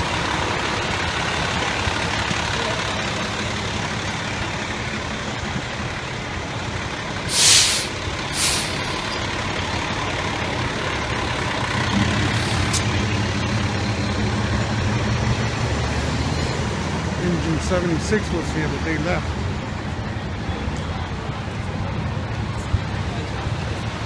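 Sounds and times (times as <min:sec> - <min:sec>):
diesel engines rumbling: 0:00.0 - 0:24.0
air brake hisses: 0:07.3 - 0:09.0.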